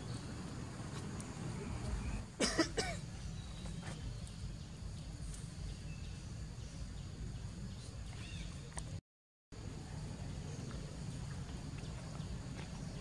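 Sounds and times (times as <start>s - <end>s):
low outdoor rumble: 9.6s - 13.0s.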